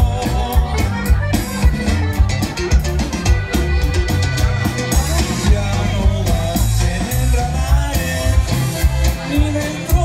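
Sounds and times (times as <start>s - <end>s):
bass line: 0.0s - 10.0s
live band playing dance music: 0.0s - 10.0s
steady drum beat: 0.0s - 10.0s.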